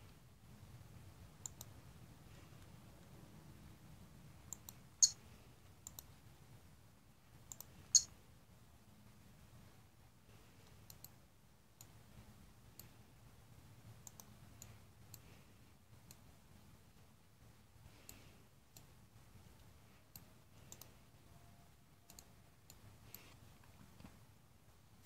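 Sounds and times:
low room hum: 0.0s - 25.0s
computer mouse clicking: 1.4s - 1.8s, 4.5s - 5.2s, 5.8s - 6.2s, 7.4s - 8.1s, 10.6s - 11.2s, 11.8s - 12.0s, 12.7s - 13.0s, 14.0s - 15.4s, 18.0s - 19.0s, 19.6s - 21.0s, 22.1s - 23.8s.

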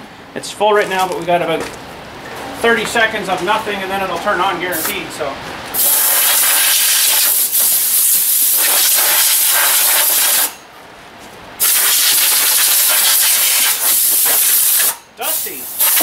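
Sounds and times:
air blow gun hissing: 5.8s - 10.6s, 11.6s - 16.0s.

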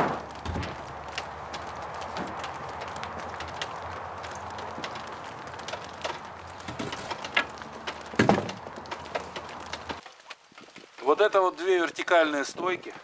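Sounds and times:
wooden knocks and clicks: 0.0s - 11.0s.

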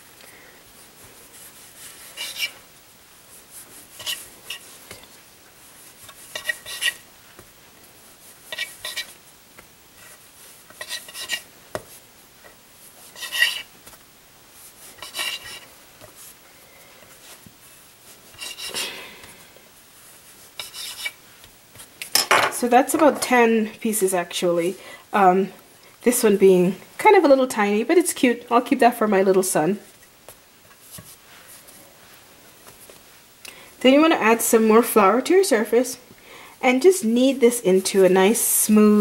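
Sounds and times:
knife cutting dough on stone board: 6.0s - 7.0s, 8.5s - 9.1s, 10.7s - 11.9s, 13.1s - 13.7s, 15.0s - 15.6s, 20.6s - 21.2s.

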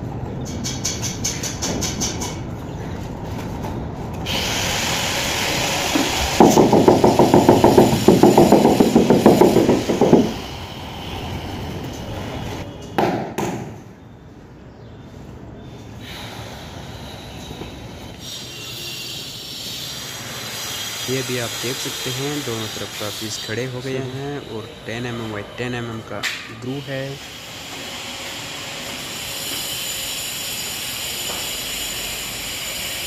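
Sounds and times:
power tool hissing on stone: 4.3s - 11.6s, 18.2s - 25.2s, 26.7s - 33.0s
short knocks: 6.4s - 10.4s.

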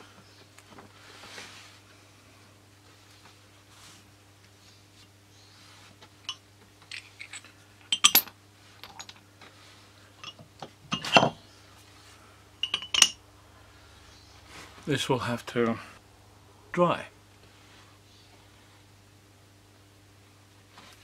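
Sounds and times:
metal weights clinking: 12.6s - 13.2s.

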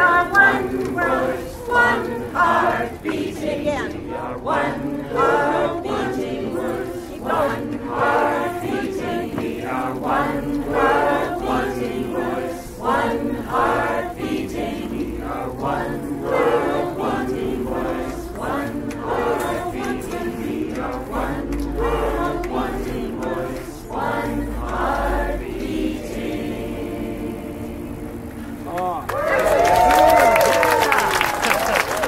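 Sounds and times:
crowd singing chant-like refrain: 0.0s - 32.0s.

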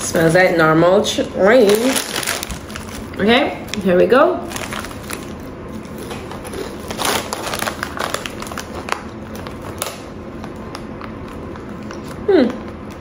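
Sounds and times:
chips crunching being chewed: 4.5s - 13.0s.

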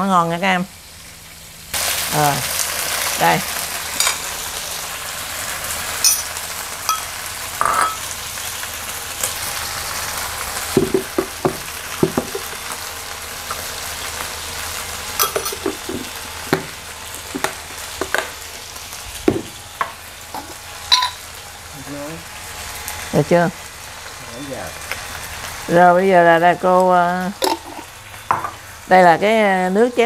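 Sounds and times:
chicken sizzling in oil: 0.4s - 30.0s
spoon clinking against dish: 6.9s - 8.0s, 15.2s - 16.6s, 20.4s - 21.2s.

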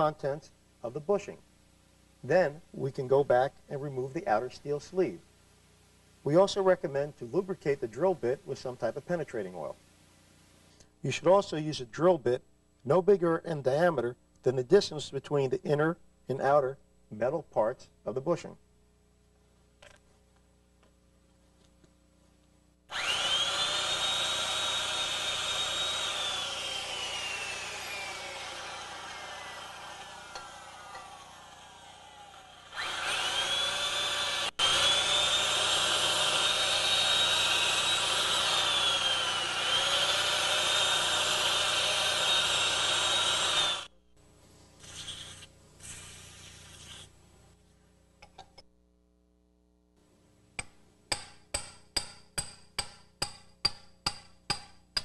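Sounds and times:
electric drill whining: 22.9s - 43.9s, 44.8s - 47.1s.

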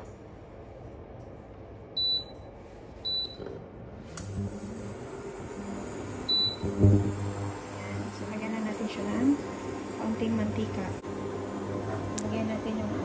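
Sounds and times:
cooktop short high beeps: 6.3s - 6.6s.

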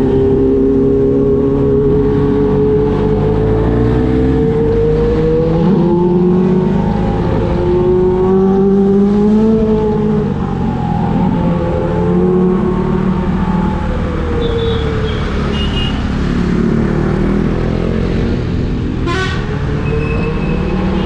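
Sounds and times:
motorcycle engine revving: 0.0s - 21.0s
car horn toots: 19.0s - 19.5s
sharp horn blast: 19.0s - 20.3s.

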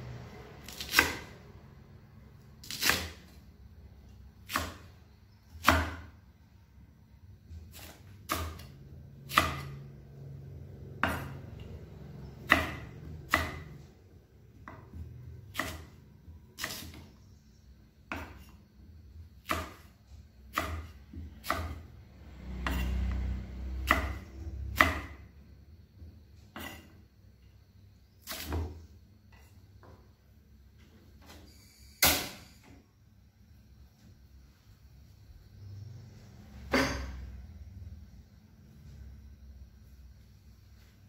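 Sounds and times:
knife chopping on wooden board: 0.6s - 1.4s, 4.4s - 4.9s, 5.5s - 6.2s, 7.6s - 9.8s, 11.0s - 11.5s, 12.4s - 13.8s, 14.6s - 16.0s, 16.6s - 17.1s, 18.1s - 18.6s, 19.4s - 21.8s, 22.6s - 25.2s, 26.5s - 26.9s, 28.2s - 30.0s.

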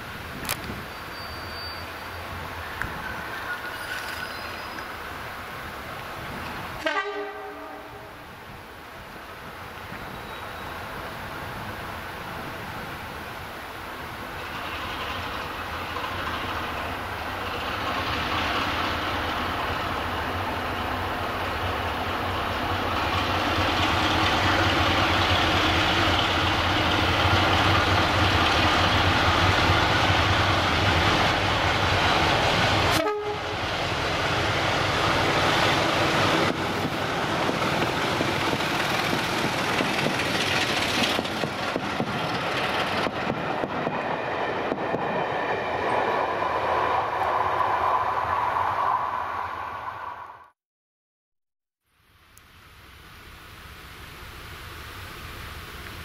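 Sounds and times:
diesel locomotive engine working hard: 14.3s - 47.8s.

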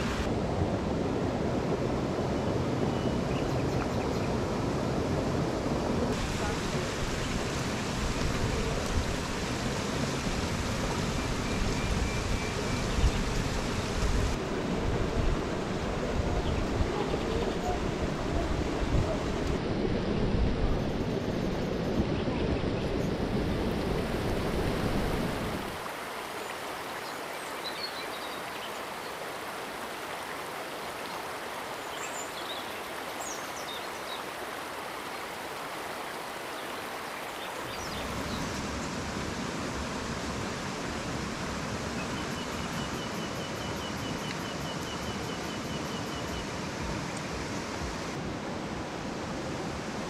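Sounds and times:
steady rushing hiss: 0.0s - 0.6s, 6.0s - 19.7s, 43.8s - 50.0s
wind rumble on microphone: 0.0s - 25.8s.

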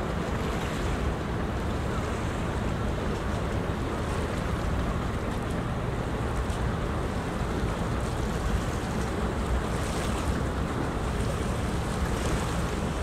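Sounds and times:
rushing wind and water: 0.0s - 13.0s.

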